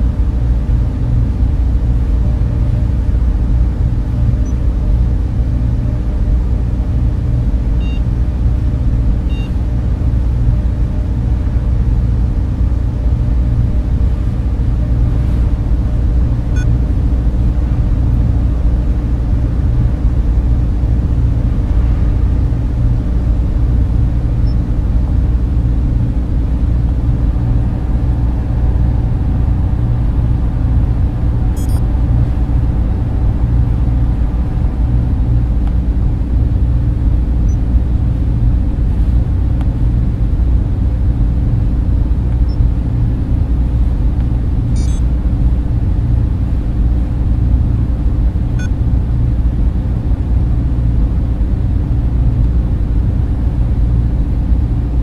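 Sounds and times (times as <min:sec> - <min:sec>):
deep machinery hum: 0:00.0 - 0:55.0
faint electronic beeps: 0:07.8 - 0:08.0, 0:09.3 - 0:09.6, 0:31.6 - 0:31.8, 0:44.7 - 0:45.1.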